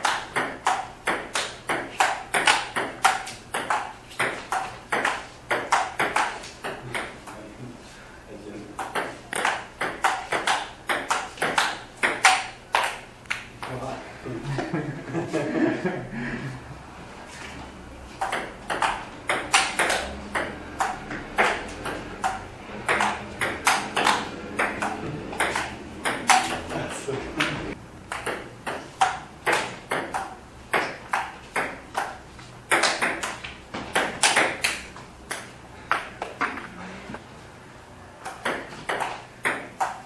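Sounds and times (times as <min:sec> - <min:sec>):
paddles striking ping-pong ball: 0:00.0 - 0:07.4, 0:08.8 - 0:13.7, 0:18.2 - 0:26.8, 0:28.1 - 0:36.6, 0:38.2 - 0:40.0
ping-pong ball bouncing on table: 0:00.0 - 0:07.4, 0:08.8 - 0:13.0, 0:18.2 - 0:26.8, 0:28.1 - 0:36.6, 0:38.2 - 0:40.0.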